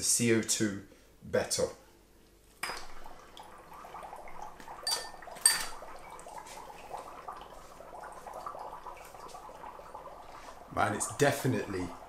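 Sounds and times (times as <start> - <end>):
dry ice bubbling in water: 2.6 - 12.0
ice chunks clinking on glass: 4.9 - 5.8.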